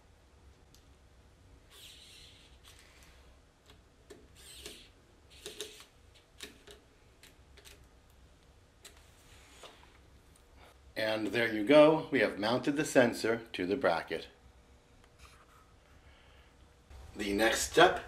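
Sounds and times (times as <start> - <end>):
screwdriver clicks and scrapes: 4.1 - 7.9.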